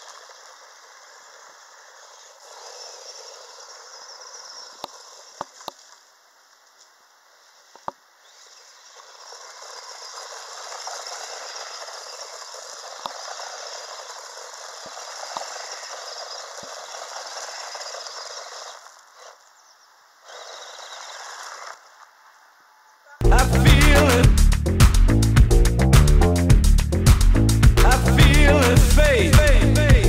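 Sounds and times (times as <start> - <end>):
toy car tyres spinning on gravel: 0.0 - 24.0
loud music: 23.2 - 30.0.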